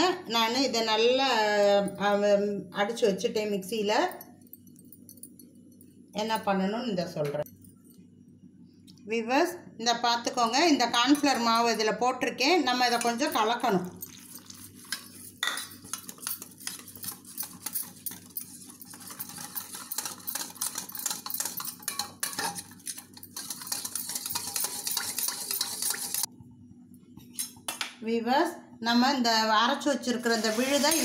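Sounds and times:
whisk clinking in metal bowl: 0:12.8 - 0:26.3.

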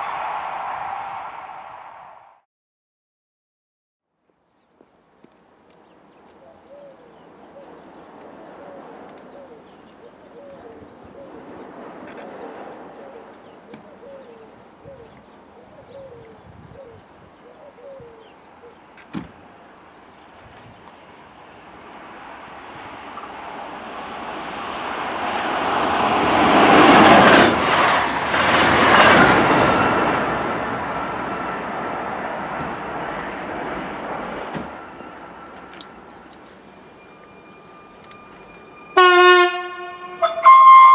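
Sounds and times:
train passing at speed: 0:00.0 - 0:02.4, 0:05.4 - 0:16.4, 0:19.5 - 0:40.9
bird calling: 0:06.1 - 0:19.8.

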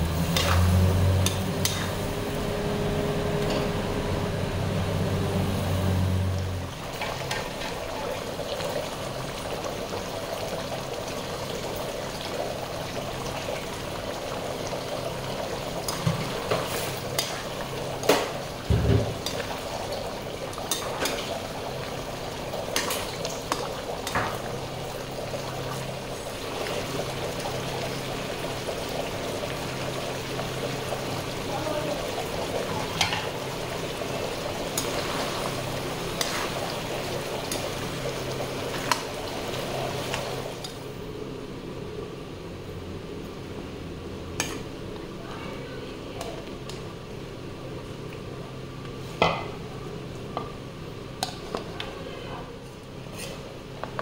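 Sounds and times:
low hum: 0:00.0 - 0:06.8
gravy simmering and bubbling: 0:00.0 - 0:42.7.

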